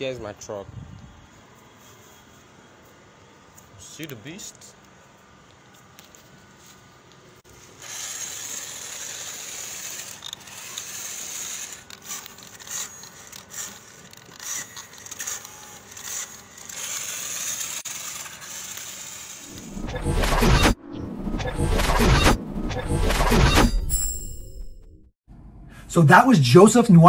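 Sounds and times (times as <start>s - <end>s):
small electric motor whining: 7.5s - 20.0s.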